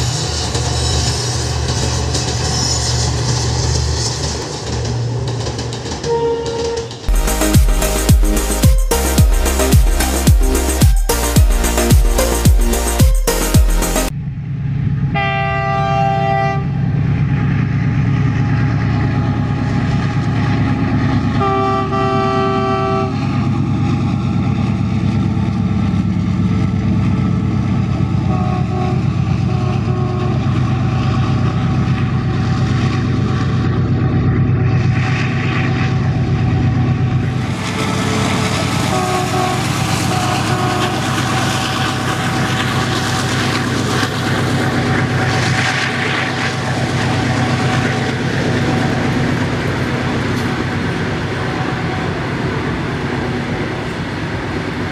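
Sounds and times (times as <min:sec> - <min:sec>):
locomotive engine droning: 0:00.0 - 0:54.9
locomotive horn: 0:06.0 - 0:09.7, 0:15.1 - 0:16.8, 0:21.4 - 0:23.3, 0:28.2 - 0:30.6, 0:37.4 - 0:42.0.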